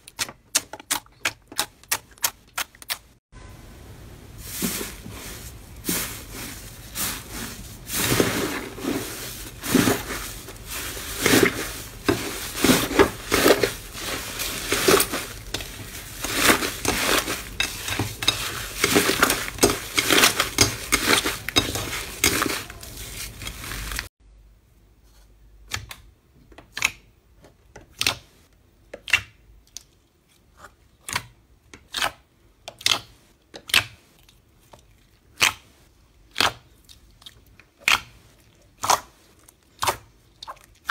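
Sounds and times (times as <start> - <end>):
slime crackling and crunching: 5.6 - 24.1.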